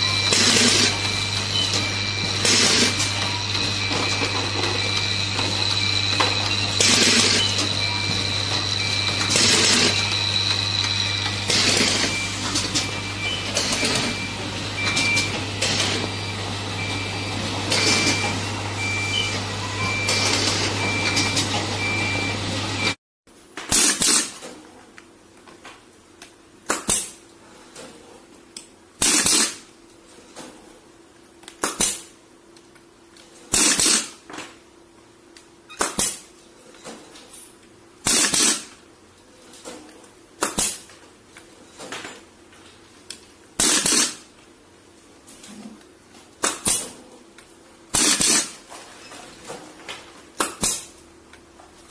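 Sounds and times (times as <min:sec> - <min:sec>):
machinery humming: 0:00.0 - 0:23.0.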